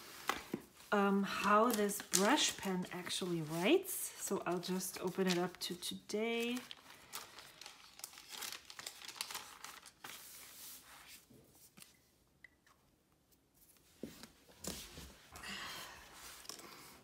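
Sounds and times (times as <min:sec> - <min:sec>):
thin pages rustling: 0:00.0 - 0:03.8, 0:04.5 - 0:11.9
hand brushing over paper: 0:10.0 - 0:11.8.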